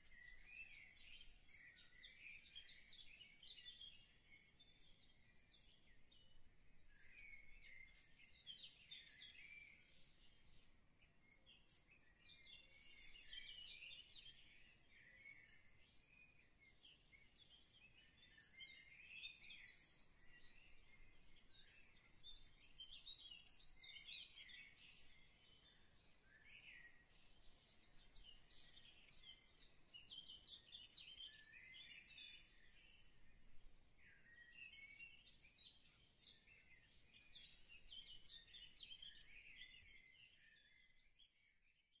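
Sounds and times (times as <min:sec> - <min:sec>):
small birds chirping: 0:00.0 - 0:42.0.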